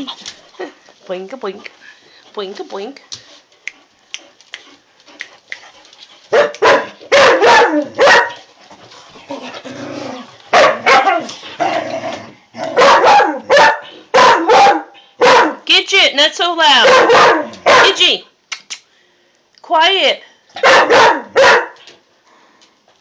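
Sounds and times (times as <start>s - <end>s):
dog barking: 6.3s - 8.4s, 10.5s - 11.3s, 12.8s - 15.6s, 16.8s - 18.1s, 20.6s - 21.8s.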